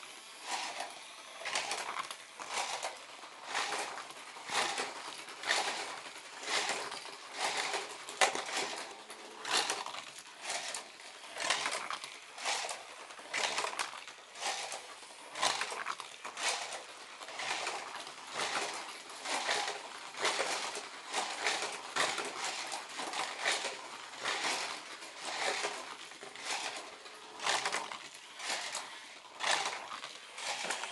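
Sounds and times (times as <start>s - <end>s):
toy race cars whirring: 0.0s - 30.9s.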